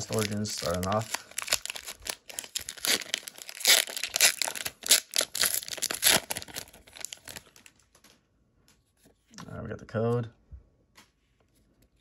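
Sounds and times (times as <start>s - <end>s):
foil wrapper crinkling and tearing: 0.0s - 7.8s.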